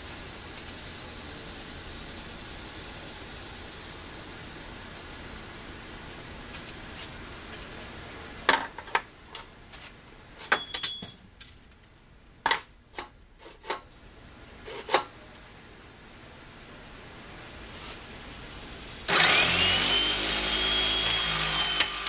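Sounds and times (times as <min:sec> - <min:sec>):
faint steady hiss: 0:00.0 - 0:22.0
metallic clinks and knocks: 0:10.4 - 0:11.6.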